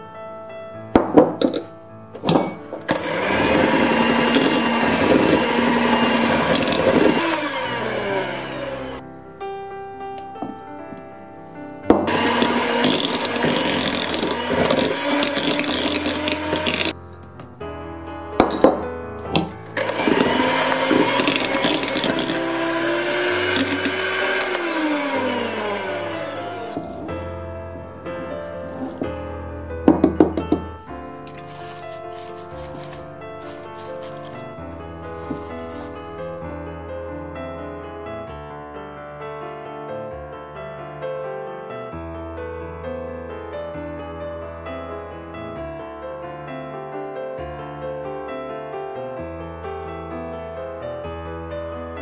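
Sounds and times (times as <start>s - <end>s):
electric hand mixer running: 2.9s - 9.0s, 12.1s - 17.0s, 19.3s - 29.0s, 31.6s - 34.4s, 35.1s - 36.6s.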